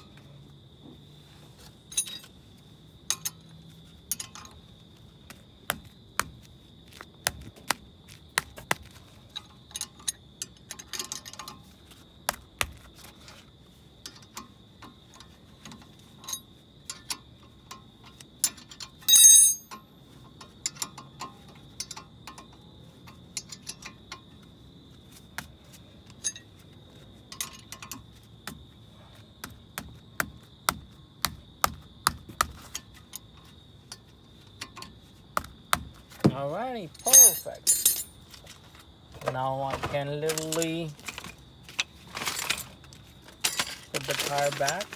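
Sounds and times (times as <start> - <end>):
metal tools clinking: 1.7 - 2.4, 3.1 - 4.7, 9.3 - 11.8, 14.0 - 24.4, 26.0 - 26.6, 27.3 - 28.1, 36.9 - 38.6, 39.2 - 44.9
ringing metal clink: 1.9 - 2.3, 18.4 - 19.9, 37.0 - 38.2.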